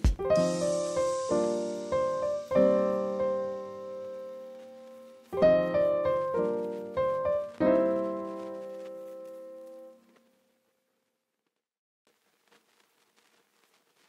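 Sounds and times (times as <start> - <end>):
slow piano chords: 0.0 - 10.2.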